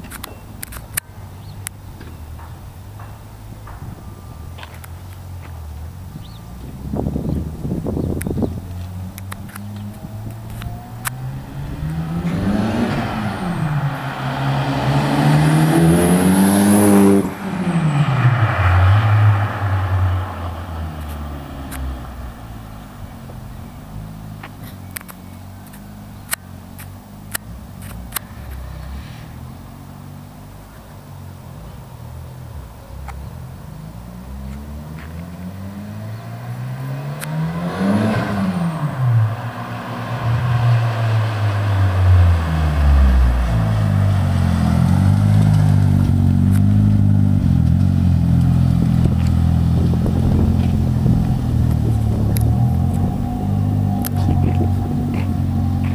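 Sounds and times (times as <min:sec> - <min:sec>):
car engine approaching and idling: 0:00.0 - 0:55.9
sharp clicks: 0:08.2 - 0:12.5.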